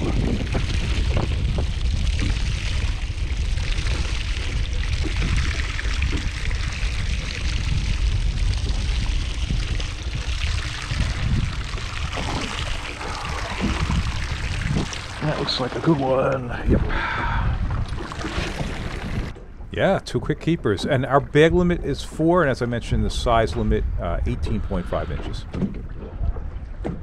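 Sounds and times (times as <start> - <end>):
water pouring into sea: 0.0 - 19.4
low rumble: 0.0 - 27.0.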